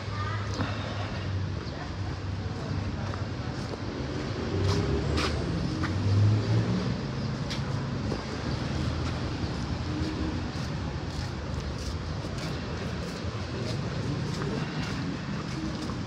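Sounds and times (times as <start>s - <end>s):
vehicle engine and road rumble: 0.0s - 16.0s.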